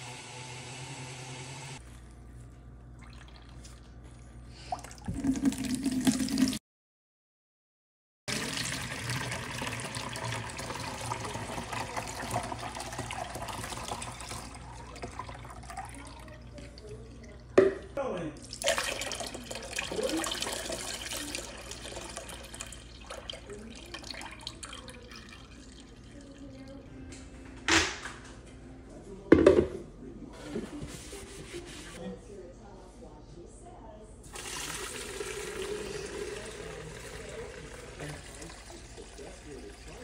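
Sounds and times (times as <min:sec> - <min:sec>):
juice pouring through a strainer: 0:04.7 - 0:06.6, 0:08.3 - 0:16.9, 0:18.4 - 0:26.7, 0:34.3 - 0:40.0.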